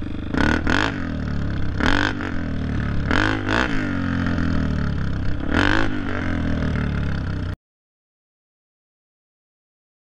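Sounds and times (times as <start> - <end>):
dirt bike engine revving: 0.0 - 7.6.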